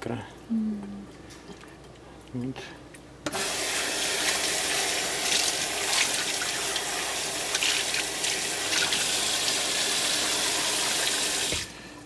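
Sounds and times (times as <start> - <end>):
faucet running into bowl: 3.3 - 11.7.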